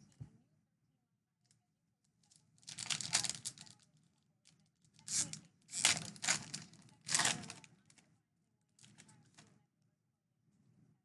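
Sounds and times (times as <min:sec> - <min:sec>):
foil wrapper tearing and crinkling: 0:02.7 - 0:03.8, 0:05.1 - 0:07.7.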